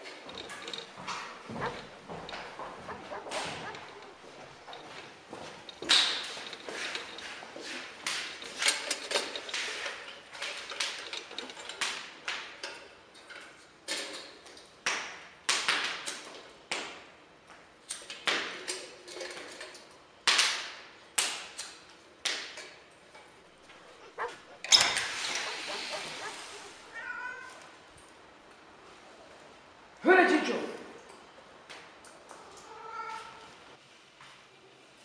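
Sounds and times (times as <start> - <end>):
sharp ringing clicks and knocks: 0.0 - 14.7, 21.6 - 26.6.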